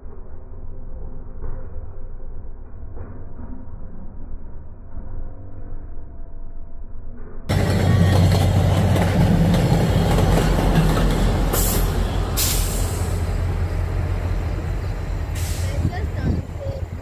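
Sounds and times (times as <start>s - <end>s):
diesel locomotive engine drone: 0.0s - 17.0s
train wheels on rails: 7.5s - 17.0s
short hisses: 11.6s - 13.4s, 15.2s - 16.0s.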